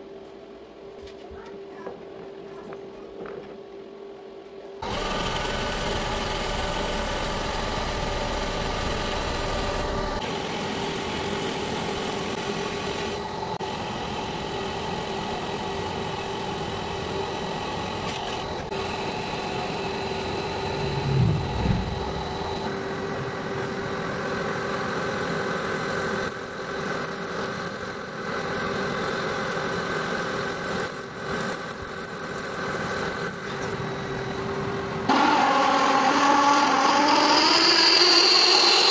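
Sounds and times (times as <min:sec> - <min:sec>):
brief low rumble: 0:20.6 - 0:22.8.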